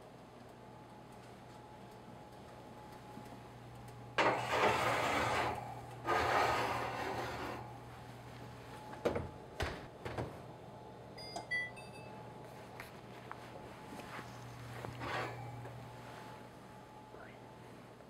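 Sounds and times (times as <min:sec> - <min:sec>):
ceramic dish scraping on metal rack: 0:04.2 - 0:07.6.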